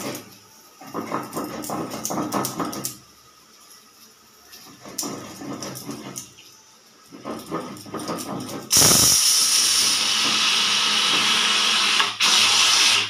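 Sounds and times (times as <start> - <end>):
pressure cooker sputtering: 7.1 - 13.0
loud steam hiss: 8.7 - 13.0.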